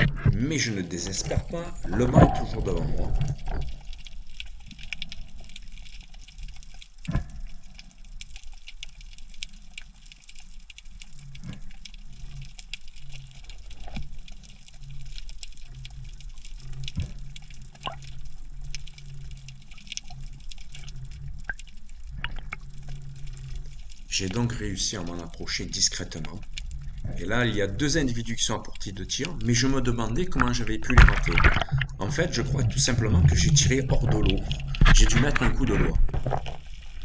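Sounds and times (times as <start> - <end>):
sharp clicks and crackles: 0.0 - 37.0
water sloshing underwater: 0.0 - 37.0
low hum: 11.0 - 37.0.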